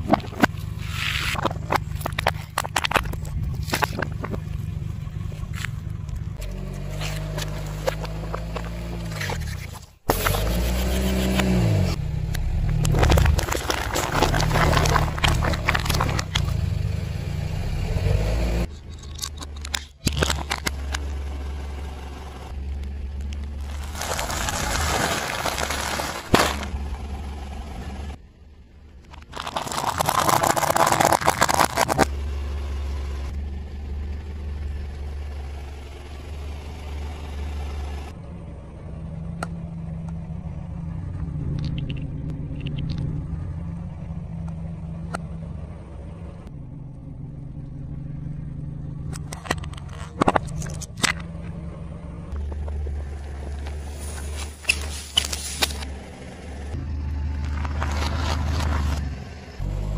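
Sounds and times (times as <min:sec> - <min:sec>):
tyre crunching objects: 0:00.0 - 0:04.6, 0:12.6 - 0:16.8, 0:23.5 - 0:26.9, 0:29.1 - 0:32.1, 0:52.3 - 0:55.9, 0:57.3 - 0:59.2
car engine running: 0:00.0 - 0:59.9
plastic bottles popping: 0:29.2 - 0:32.1.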